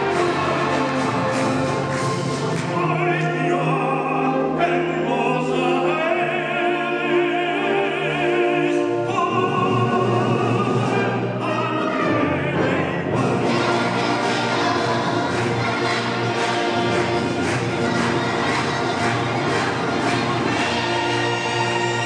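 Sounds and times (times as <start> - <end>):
man singing operatically: 2.6 - 13.2.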